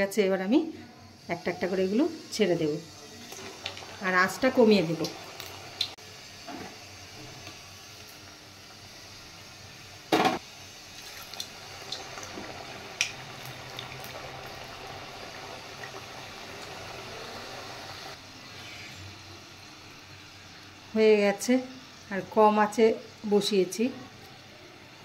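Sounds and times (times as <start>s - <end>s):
loud sizzle burst: 1.2s - 22.1s
deep-frying oil bubbling: 7.2s - 18.2s.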